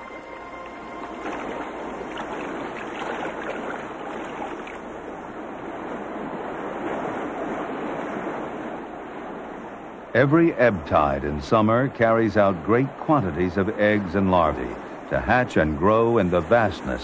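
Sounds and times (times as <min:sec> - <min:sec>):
choppy sea water sloshing: 0:00.0 - 0:10.2.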